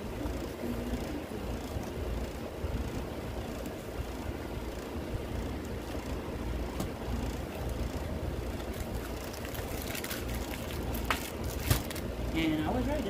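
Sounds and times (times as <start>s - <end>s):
plastic packaging crinkling: 8.6s - 12.1s.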